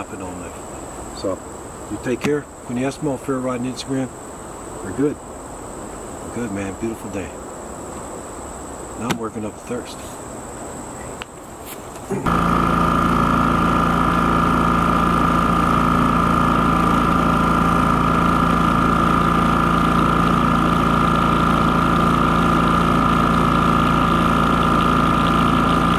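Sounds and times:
steady high hum: 0.0 - 25.9
generator engine running: 12.1 - 25.9.

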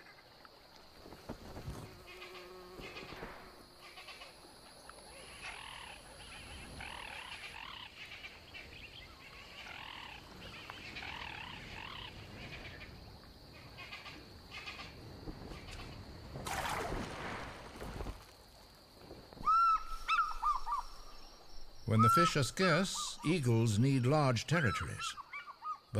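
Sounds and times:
eagle yelping calls: 19.4 - 21.1, 21.9 - 23.3, 24.6 - 25.9.

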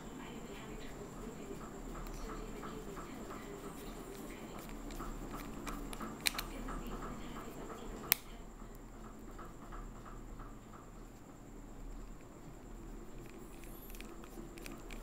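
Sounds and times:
screwdriver ticks and handling noise: 3.8 - 7.0, 13.1 - 15.0
sharp metallic clicks: 4.1 - 6.6.

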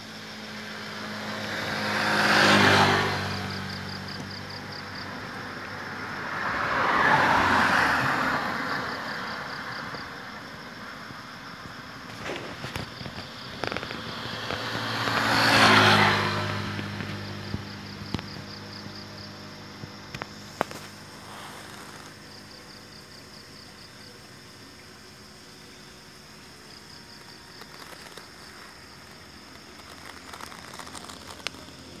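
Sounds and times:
insects chirping: 0.0 - 32.0
vehicle passing: 0.3 - 23.6.

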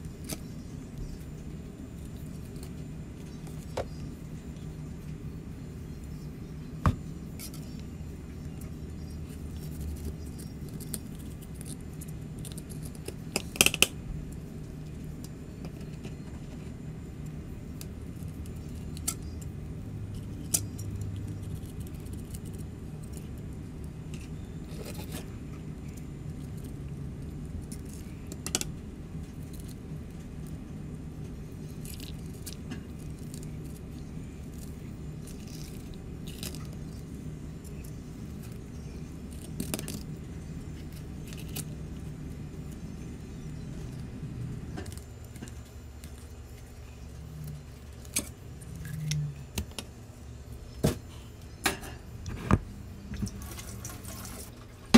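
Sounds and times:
steady low hum: 0.0 - 54.9
knife cutting and scraping fish: 24.2 - 25.4.

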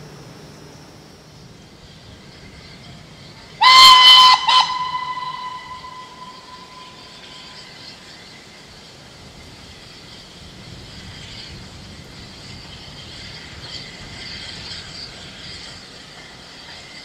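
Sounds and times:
steam locomotive whistle: 2.4 - 8.5.

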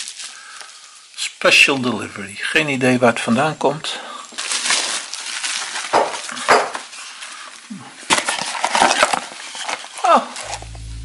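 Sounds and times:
tearing noises: 0.0 - 0.8, 4.4 - 10.8
plastic bag rustling: 0.0 - 1.0, 4.3 - 11.0.

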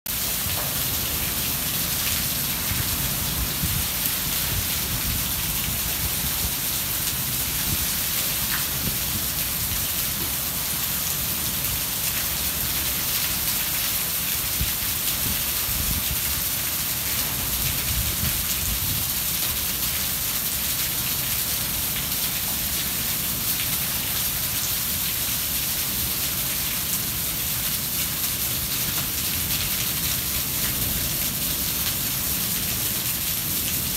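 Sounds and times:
rain pouring: 0.1 - 33.9.

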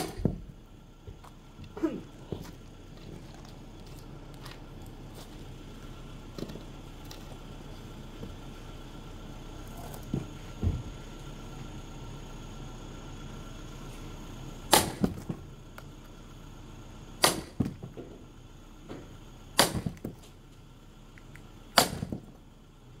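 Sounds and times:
sledgehammer striking axe: 0.0 - 0.5, 14.7 - 15.4, 17.2 - 18.0, 19.6 - 20.2, 21.8 - 22.4.

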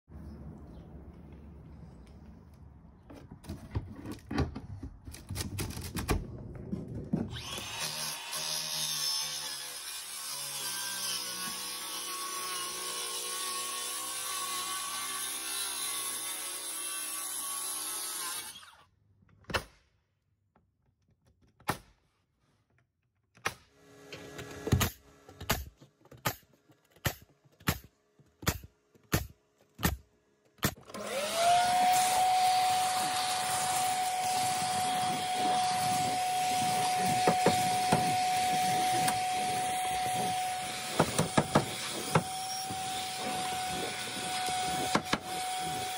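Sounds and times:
circular saw cutting plywood: 7.3 - 18.8, 30.8 - 45.9
nail gun shots: 24.7 - 30.9
vacuum whining: 30.9 - 45.9.

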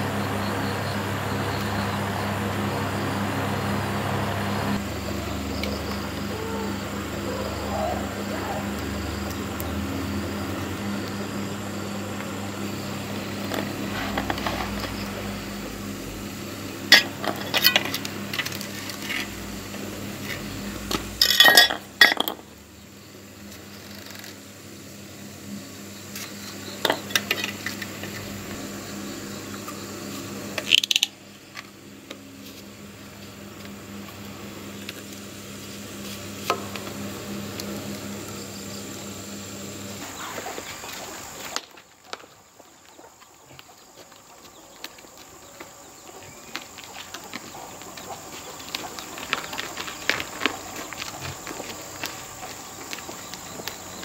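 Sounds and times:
low hum: 0.0 - 41.6.

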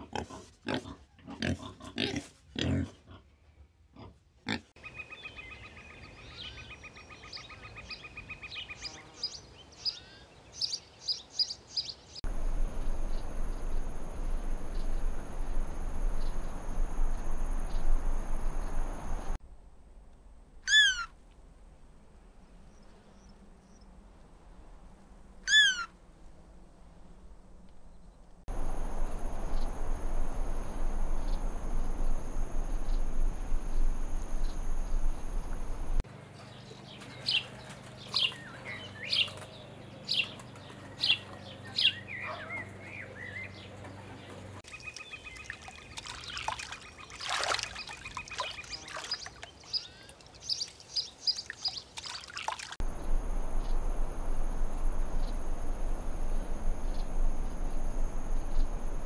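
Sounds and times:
background hiss: 7.6 - 36.0, 52.8 - 59.0
high insect buzz: 12.3 - 19.4, 28.5 - 36.0, 52.8 - 59.0
trilling bird call: 20.7 - 21.1, 25.5 - 25.9.

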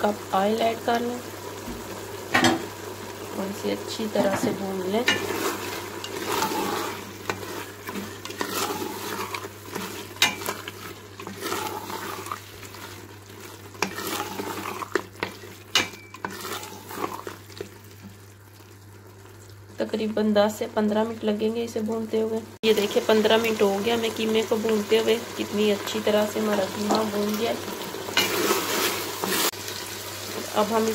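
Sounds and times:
meat and potatoes sizzling in oil: 0.0 - 30.9
spatula stirring and scraping: 4.2 - 18.7, 28.0 - 29.7.

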